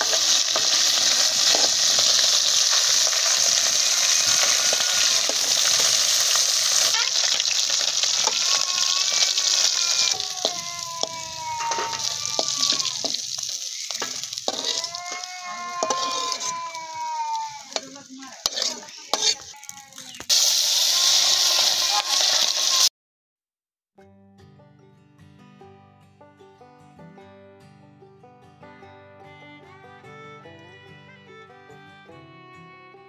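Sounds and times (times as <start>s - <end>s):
fish sizzling in hot oil: 0.0s - 22.9s
squealing tones: 0.0s - 22.9s
metal spatula scraping pan: 11.0s - 13.4s, 14.0s - 16.6s, 17.6s - 19.8s.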